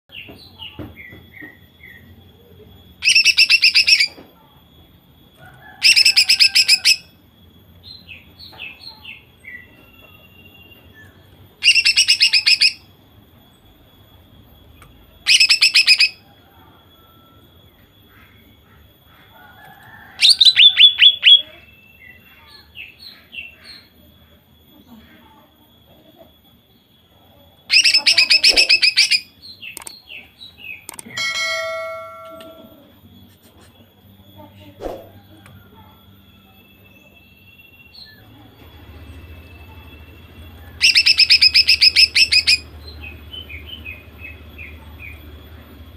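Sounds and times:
soft bird chirps: 7.4 - 45.9
bird calling rapid notes: 11.6 - 12.8, 27.7 - 29.9, 40.8 - 42.7.

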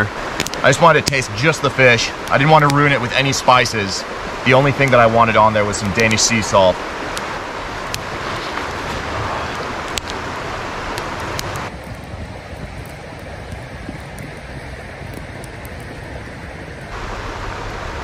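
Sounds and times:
campfire crackling and popping: 0.0 - 18.0
river rushing: 0.0 - 18.0.

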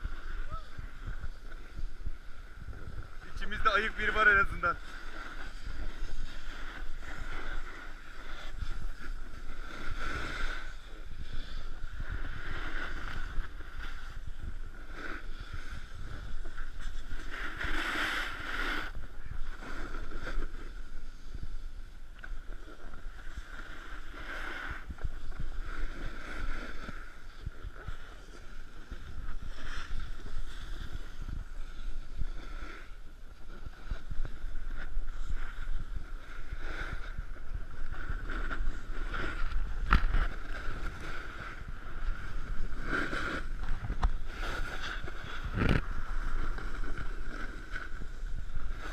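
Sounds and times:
wind buffeting microphone: 0.0 - 4.8
snowboard scraping over snow: 0.0 - 48.9.

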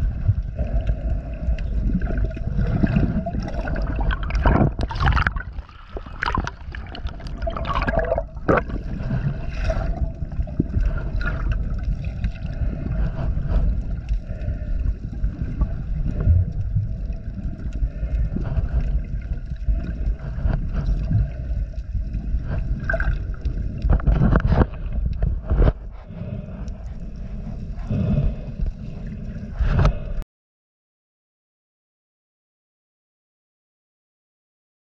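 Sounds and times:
muffled underwater water sloshing: 0.0 - 30.2
water splashes: 0.2 - 26.2.

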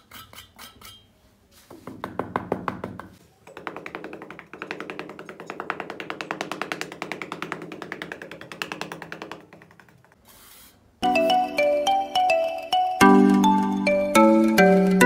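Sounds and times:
short hiss: 10.2 - 10.9
chiming music: 11.0 - 15.0.

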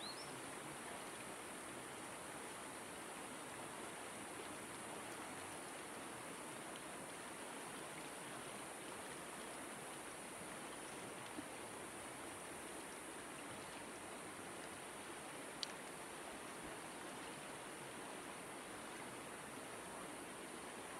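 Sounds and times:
river flowing over stones: 0.0 - 20.9
faint tick: 15.5 - 16.0.

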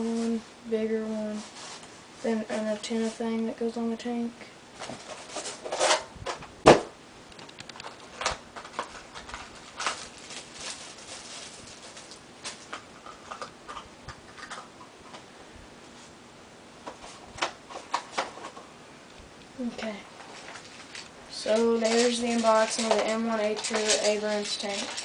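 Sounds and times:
small parts clicking and rustling: 7.4 - 14.8, 19.8 - 25.0.

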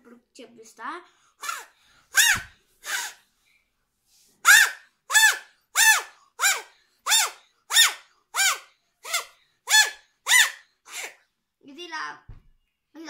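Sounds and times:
buzzy paper reed whistle squawks: 1.4 - 3.3, 4.4 - 11.2.

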